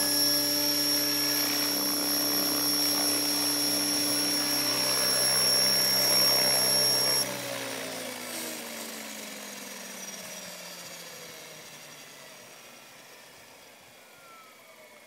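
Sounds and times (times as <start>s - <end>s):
rotor spinning down: 0.0s - 7.2s
model helicopter whine: 0.0s - 15.0s.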